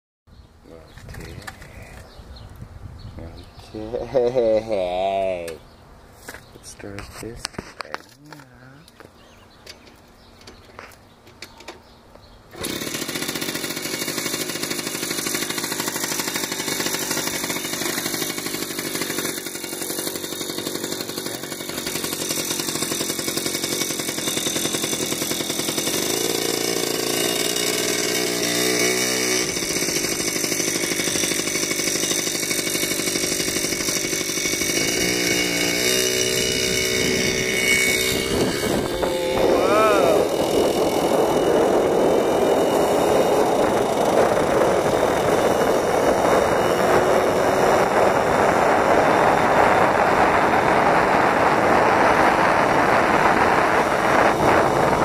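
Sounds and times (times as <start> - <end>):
moped engine running: 12.5 - 55.0.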